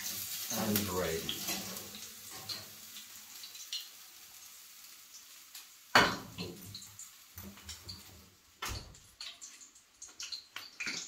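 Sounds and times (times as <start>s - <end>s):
metal frying pan clanking on rack: 5.9s - 6.6s.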